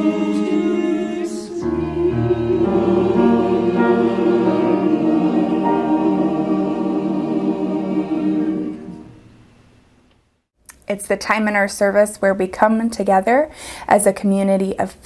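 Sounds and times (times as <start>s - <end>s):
choir singing sustained chords: 0.0s - 10.0s.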